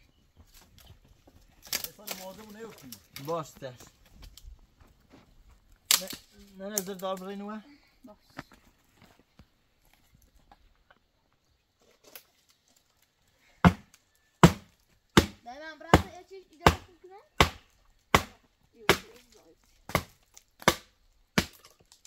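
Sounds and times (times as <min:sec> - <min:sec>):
chopping into tree branch: 0:05.9 - 0:06.3, 0:13.6 - 0:22.0.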